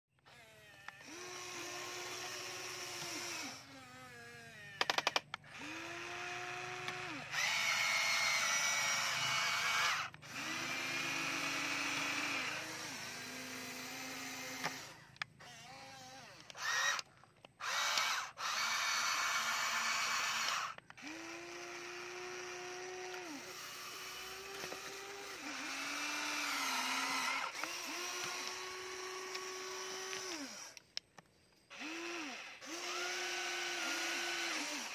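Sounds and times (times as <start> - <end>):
toy electric motors whining: 0.2 - 34.9
sharp clicks: 4.8 - 5.7, 16.3 - 18.7, 20.2 - 21.8, 26.6 - 31.9.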